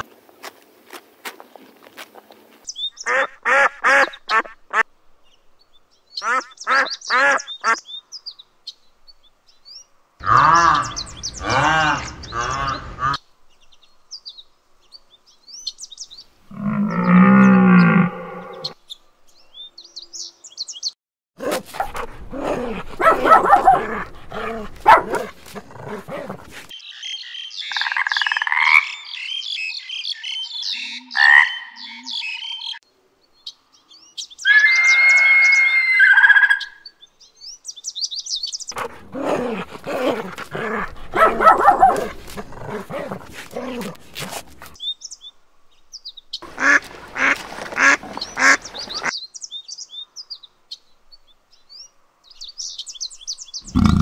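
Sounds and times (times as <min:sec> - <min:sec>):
pitched animal calls: 0:10.2 - 0:13.2, 0:21.4 - 0:26.7, 0:38.7 - 0:44.8, 0:53.6 - 0:54.0
goose honks: 0:46.5 - 0:49.1.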